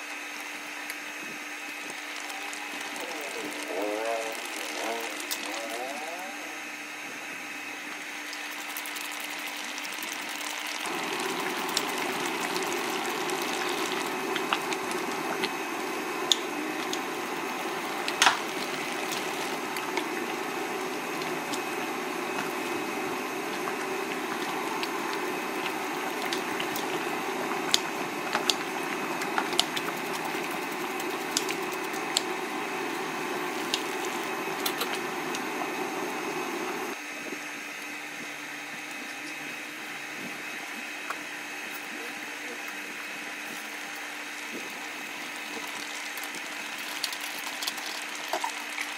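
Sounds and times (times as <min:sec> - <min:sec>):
broth bubbling in a wok: 0:00.0 - 0:06.0, 0:07.4 - 0:37.6, 0:42.9 - 0:48.9
faint steady hum: 0:10.8 - 0:37.4.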